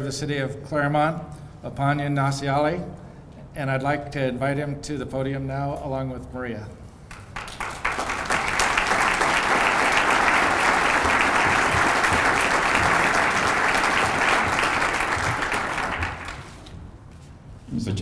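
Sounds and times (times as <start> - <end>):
audience applauding: 7.1 - 16.8.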